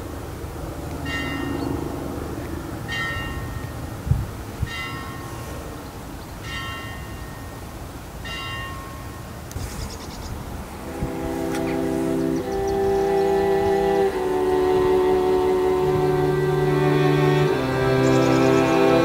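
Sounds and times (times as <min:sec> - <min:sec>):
steady low rumble: 0:10.5 - 0:19.0.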